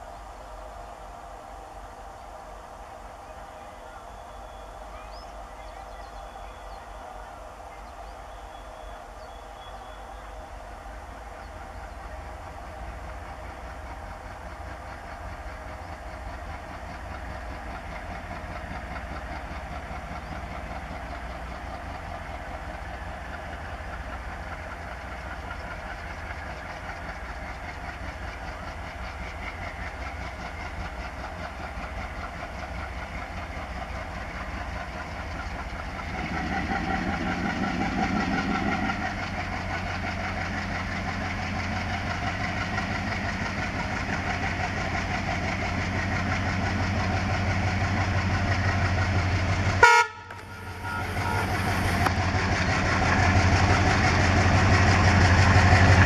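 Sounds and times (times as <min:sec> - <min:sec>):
diesel locomotive engines: 0:00.0 - 0:56.0.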